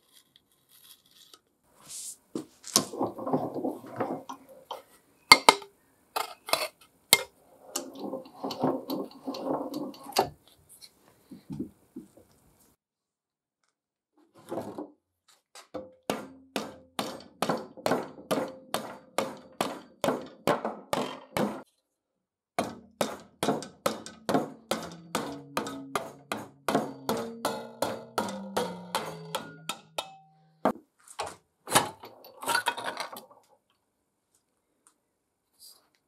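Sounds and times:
rubber mallet knocking on metal: 0:15.8 - 0:21.6, 0:22.6 - 0:30.2
metal ringing: 0:23.6 - 0:30.6.

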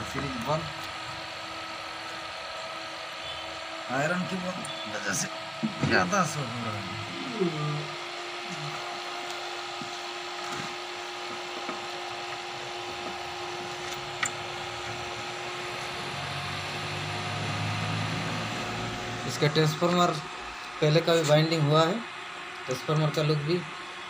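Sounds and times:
power amplifier hiss and hum: 0:00.0 - 0:24.0.

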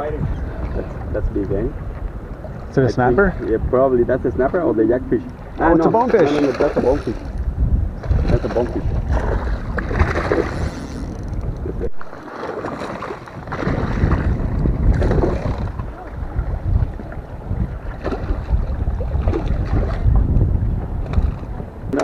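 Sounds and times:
wind buffeting microphone: 0:00.0 - 0:22.0
sea water washing against rocks: 0:08.0 - 0:20.3.

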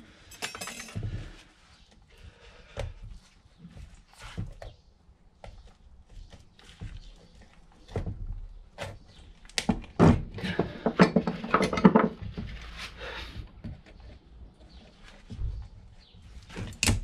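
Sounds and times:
metal knocks and clunks: 0:09.8 - 0:12.6.

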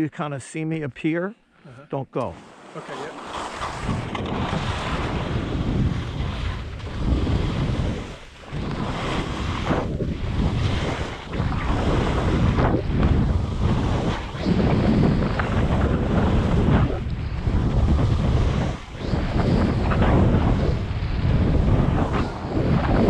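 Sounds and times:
wind rushing over microphone: 0:02.3 - 0:23.0
skis on crusted snow: 0:02.4 - 0:09.6.

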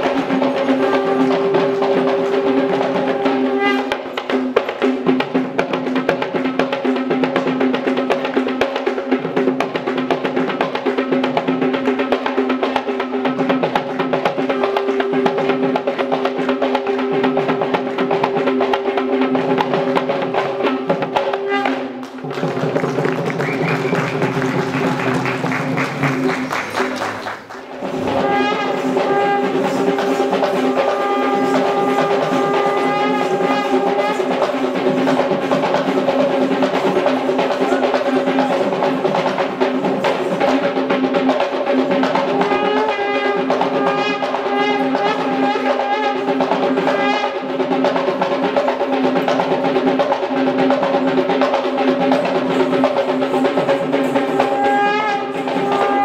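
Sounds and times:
wavering wind instrument melody: 0:00.0 - 0:05.2, 0:13.9 - 0:22.3, 0:27.8 - 0:40.9, 0:52.2 - 0:56.0
dense steady drumming: 0:00.0 - 0:56.0.

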